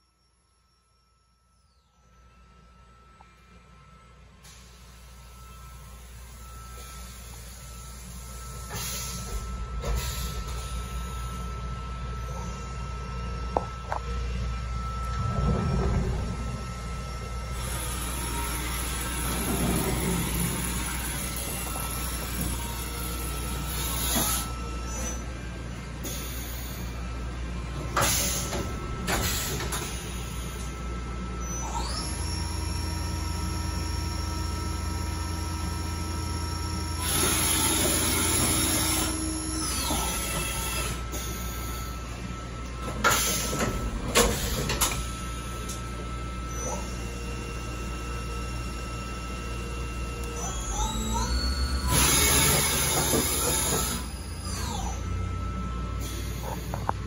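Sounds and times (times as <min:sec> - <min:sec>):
shop machinery humming: 0:01.6 - 0:57.0.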